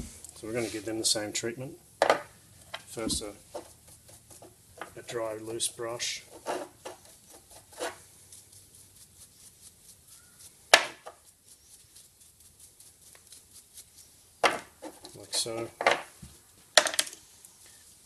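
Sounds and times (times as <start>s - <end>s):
brush scrubbing metal: 0.4s - 1.4s, 2.5s - 16.7s.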